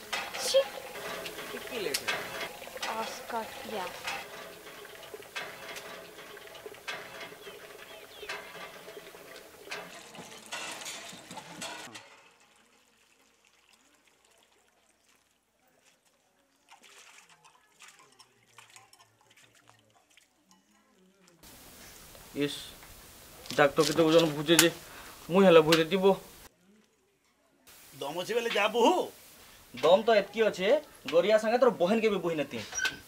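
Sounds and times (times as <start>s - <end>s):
clinks and knocks: 0.0s - 12.5s
water splashing into metal pot: 0.0s - 26.5s.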